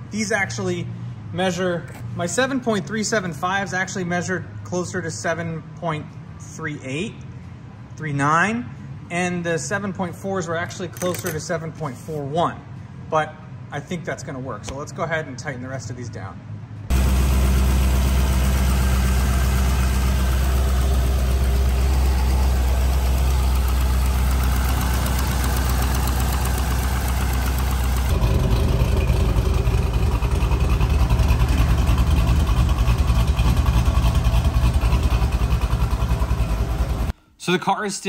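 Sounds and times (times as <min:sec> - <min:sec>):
car engine idling: 0:16.9 - 0:37.1
exhaust leak: 0:16.9 - 0:37.1
pulsing exhaust note: 0:16.9 - 0:37.1.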